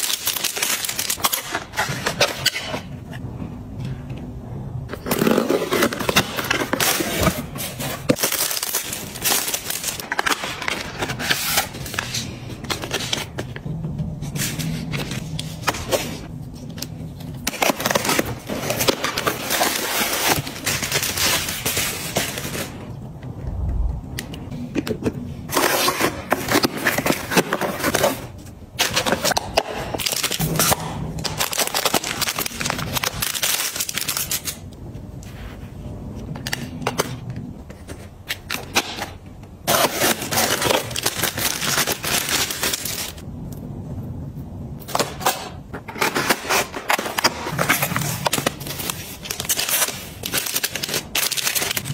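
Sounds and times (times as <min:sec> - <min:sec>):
packaging crinkling and rustling: 0:00.0 - 0:02.8, 0:05.1 - 0:13.6, 0:25.5 - 0:34.6, 0:37.7 - 0:43.2, 0:44.9 - 0:51.9.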